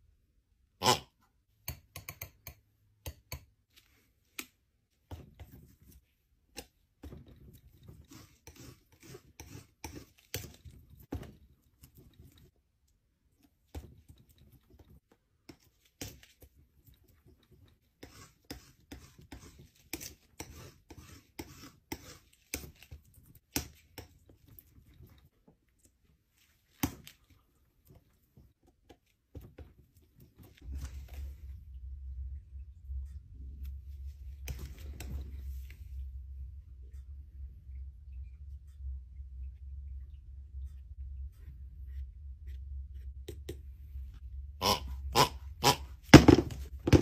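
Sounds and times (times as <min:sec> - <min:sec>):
palette knife scraping paint: 0:05.1 - 0:10.9, 0:15.4 - 0:25.3.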